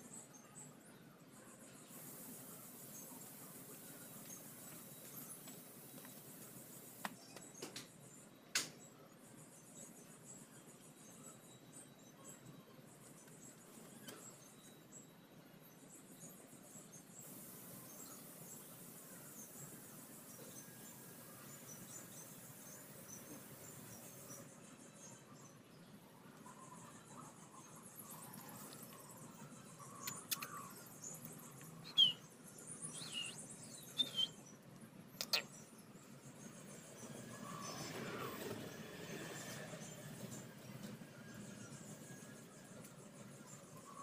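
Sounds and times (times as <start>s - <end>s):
thin high hiss: 1.8s - 7.3s, 17.0s - 24.6s
bird chirps: 27.5s - 38.0s
high-pitched chirps: 31.8s - 32.2s.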